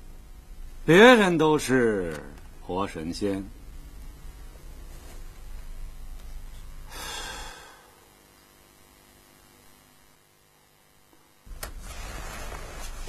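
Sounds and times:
low steady hum: 0.0 - 13.0
man sighing: 6.9 - 8.0.

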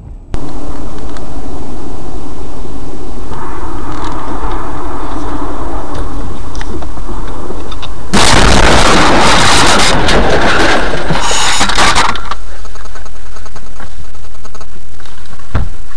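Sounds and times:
crunching and rattling: 3.3 - 15.5
loud car crash: 8.1 - 12.2.

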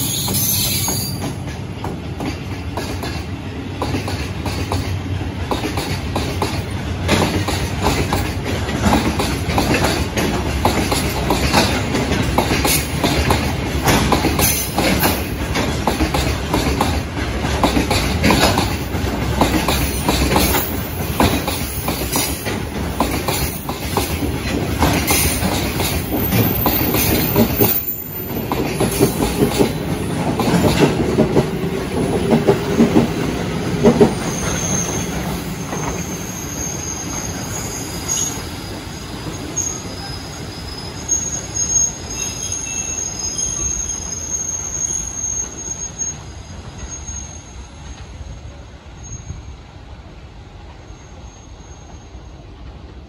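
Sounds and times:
high wheel squeal: 0.0 - 1.3, 25.1 - 28.5, 34.1 - 48.0
train wheels clattering over rail joints: 0.0 - 36.3.

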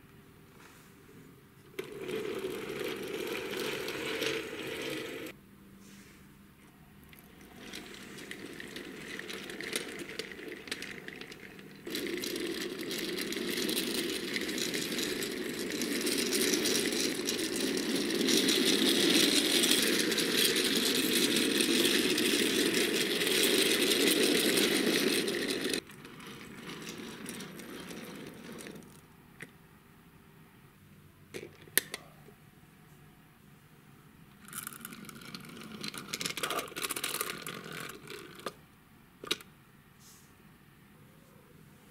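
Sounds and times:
toy truck rolling on wooden floor: 1.8 - 5.4, 7.1 - 29.1, 34.4 - 38.6.

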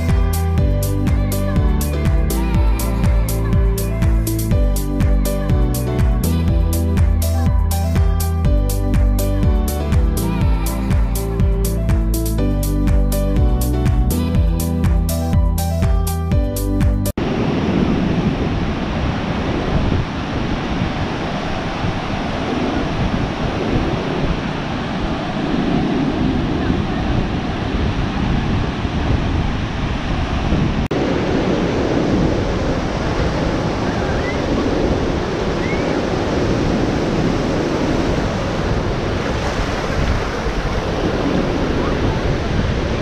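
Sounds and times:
sea surf washing on beach: 17.2 - 43.0
wind buffeting microphone: 17.2 - 43.0.

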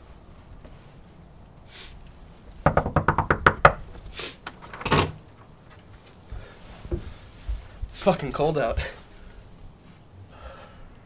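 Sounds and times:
rapid knocks on a door: 2.6 - 3.9.

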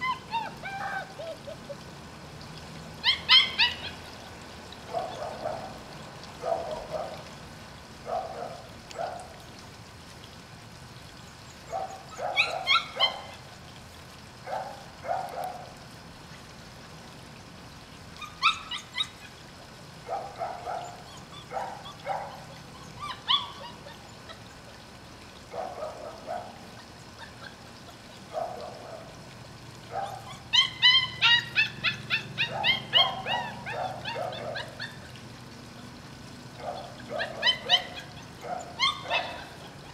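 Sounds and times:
puppies whining and yipping: 0.0 - 1.9, 3.0 - 4.4, 5.0 - 5.7, 11.7 - 13.5, 18.2 - 19.5, 20.2 - 24.6, 25.6 - 28.7, 29.9 - 35.2, 36.6 - 39.9.

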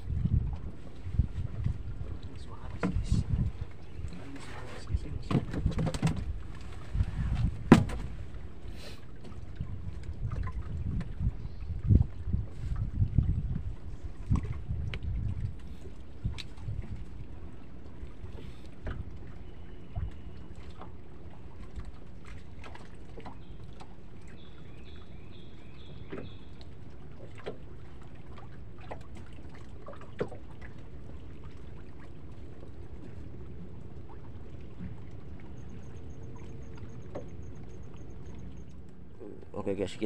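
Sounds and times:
boat engine low rumble: 0.0 - 40.0.

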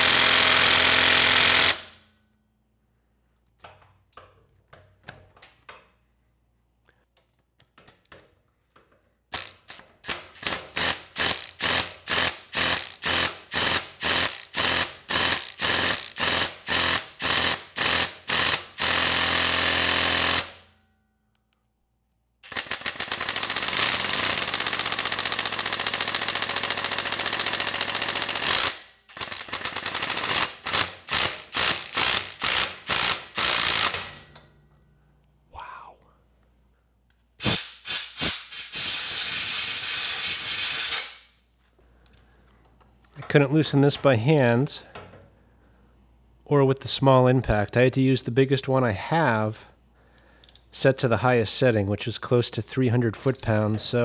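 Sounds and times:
impact wrench hammering: 7.8 - 20.6, 22.4 - 34.5.

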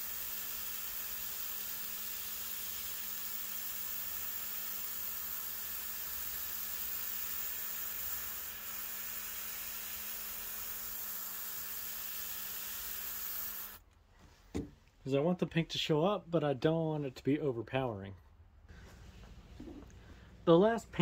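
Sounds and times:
airbrush air hiss: 0.0 - 13.8.

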